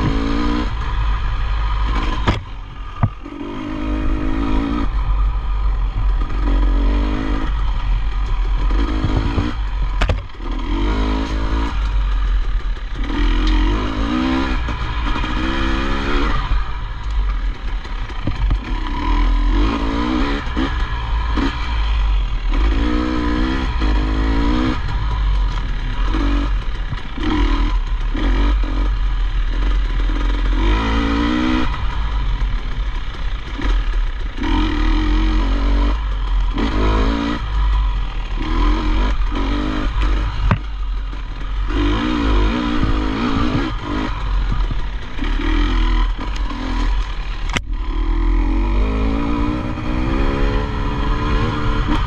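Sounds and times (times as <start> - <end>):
motorcycle engine revving: 0.0 - 52.0
sharp knock: 2.2 - 3.2.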